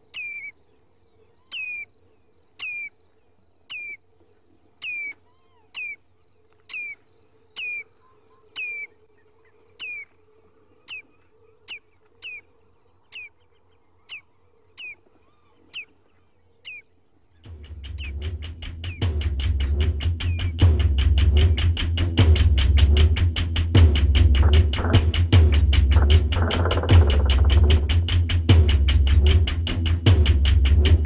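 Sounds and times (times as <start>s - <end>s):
electronic bird-like chirps: 17.5s - 22.0s, 22.8s - 30.2s
low hum: 17.5s - 31.0s.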